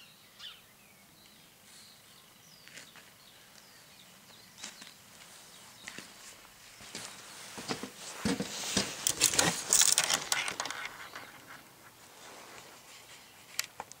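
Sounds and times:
footsteps: 4.6s - 13.1s
camera handling rustling and clicking: 8.2s - 11.7s, 13.4s - 14.0s.

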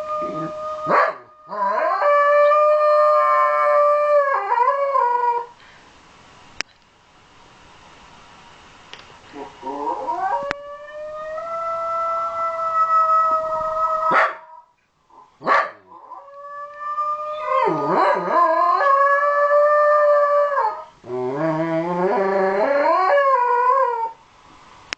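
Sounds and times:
dog howling: 0.0s - 5.5s, 9.4s - 14.7s, 15.9s - 24.2s.

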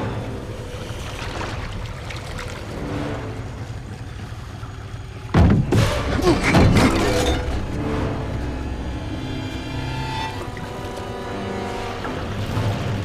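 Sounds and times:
swirling water: 0.0s - 13.0s
heavy bangs and crashes: 5.3s - 8.0s.

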